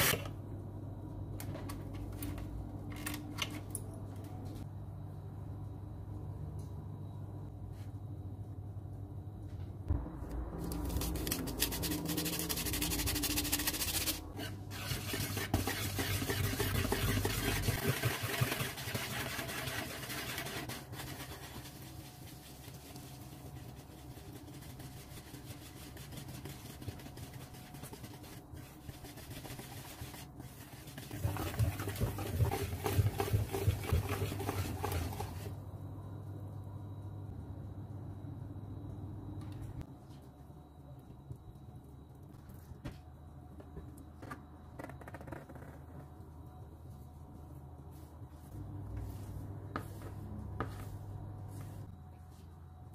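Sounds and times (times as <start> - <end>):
batter beaten in plastic bowl: 10.9 - 35.6
wire whisk beating batter: 11.2 - 35.6.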